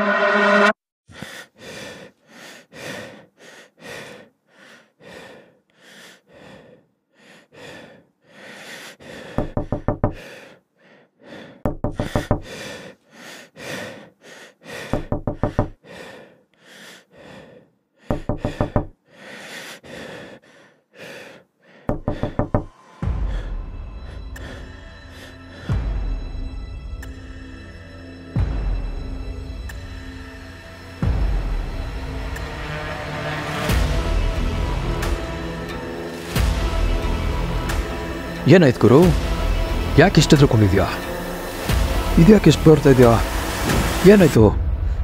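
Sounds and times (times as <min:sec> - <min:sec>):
heavy gasping breaths: 0:01.1 - 0:25.9
rapid knocking on wooden door: 0:09.4 - 0:10.2, 0:11.7 - 0:12.5, 0:14.9 - 0:15.8, 0:18.1 - 0:18.9, 0:21.9 - 0:22.7.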